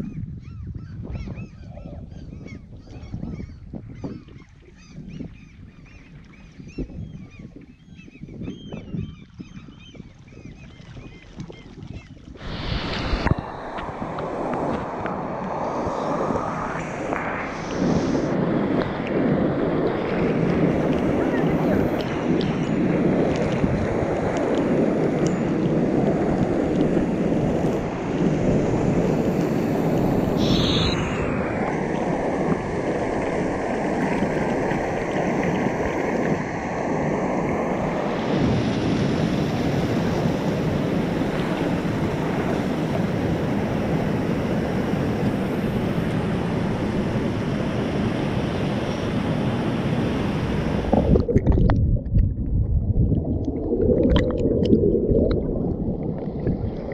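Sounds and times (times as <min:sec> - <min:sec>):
muffled underwater rumble: 0:00.0 - 0:56.9
waterfall rushing: 0:12.4 - 0:18.9.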